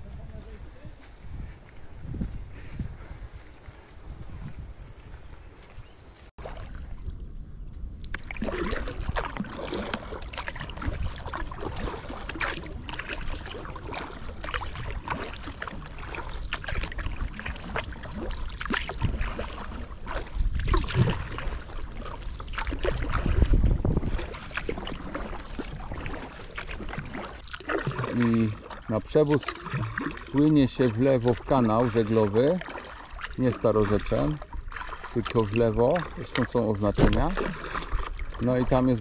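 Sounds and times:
wind gusting on microphone: 0.0s - 5.9s, 22.8s - 26.2s
kayak paddle splashing: 5.8s - 39.0s
water washing against hull: 6.4s - 39.0s.

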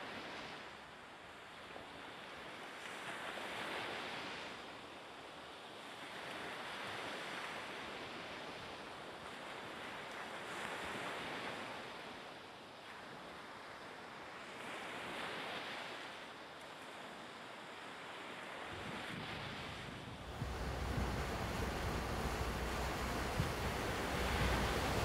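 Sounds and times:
wind noise: 18.7s - 25.0s
water rushing hiss: 20.2s - 25.0s.

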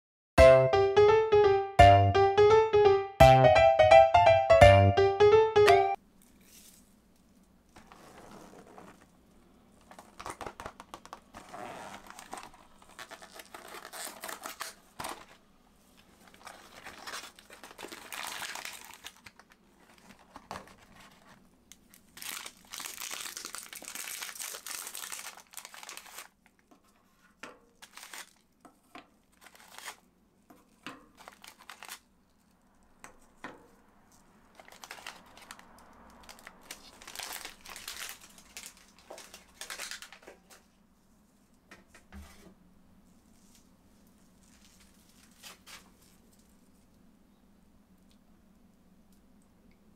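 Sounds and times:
plastic packaging crinkling: 6.2s - 30.1s, 31.0s - 32.6s, 34.1s - 40.8s, 43.3s - 46.8s.

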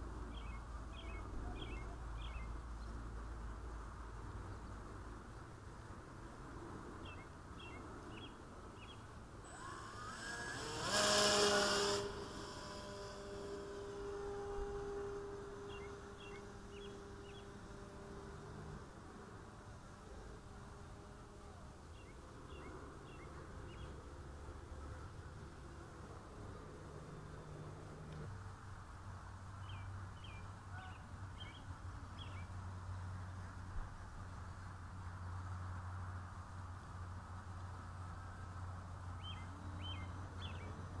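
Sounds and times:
propeller rush: 9.2s - 28.5s
electric model plane motor whine: 9.4s - 24.0s, 25.0s - 28.3s.

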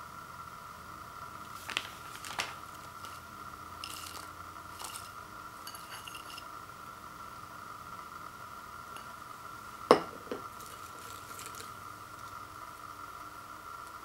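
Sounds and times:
faint high hum: 0.0s - 14.0s
snack bag crinkling: 1.4s - 3.2s, 3.8s - 5.2s, 10.5s - 12.4s.

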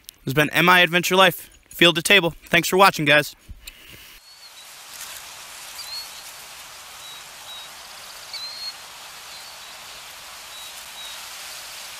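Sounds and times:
steady hissing noise: 3.0s - 11.9s.

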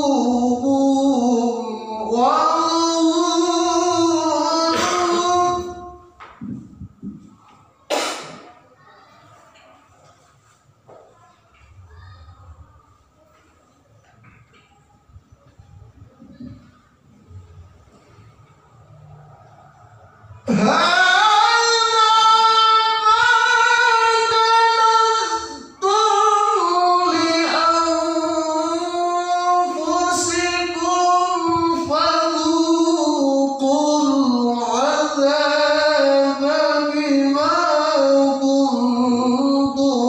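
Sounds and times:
man reciting melodically: 0.0s - 7.2s, 20.3s - 40.0s.

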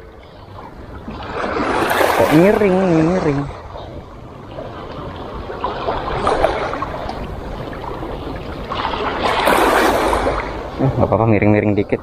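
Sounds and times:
wind rumbling on microphone: 0.0s - 12.0s
waves splashing on rocks: 1.1s - 3.6s, 5.0s - 10.8s.

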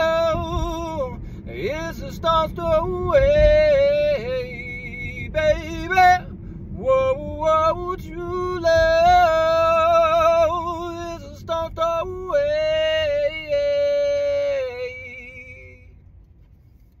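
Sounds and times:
man singing wordless notes: 6.9s - 15.9s.

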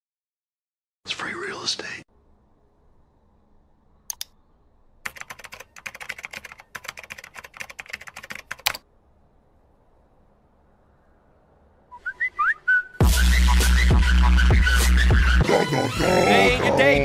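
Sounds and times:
typing on computer keyboard: 5.0s - 8.8s.

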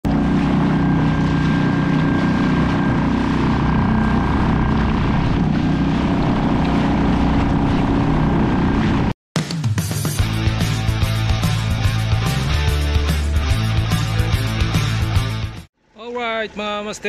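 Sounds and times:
outboard motor running: 0.0s - 9.1s
water rushing: 0.0s - 9.1s
wind: 0.0s - 9.1s, 15.8s - 17.0s.

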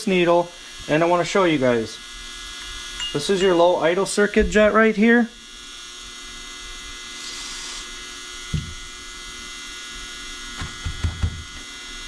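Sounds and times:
electrical hum with buzzing: 0.0s - 12.0s
soft knock: 8.5s - 8.8s.

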